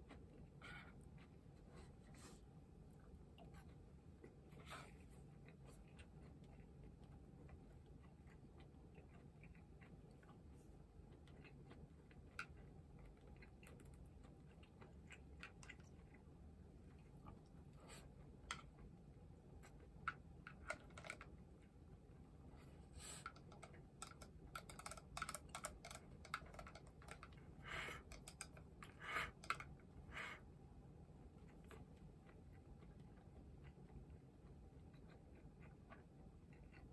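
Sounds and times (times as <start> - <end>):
chewing: 0.0 - 21.8, 22.6 - 30.4, 31.2 - 36.9
chopsticks clicking on a bowl: 23.2 - 27.4.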